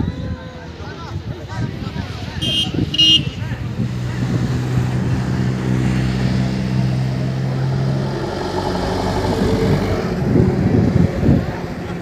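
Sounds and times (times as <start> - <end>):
minibus engine running: 3.0 - 12.0.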